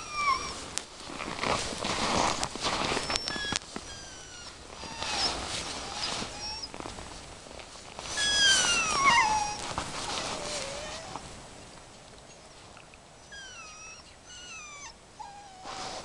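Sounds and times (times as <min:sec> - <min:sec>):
puppy whining: 0:00.0 - 0:00.7, 0:02.1 - 0:06.8, 0:08.0 - 0:11.2, 0:13.2 - 0:16.0.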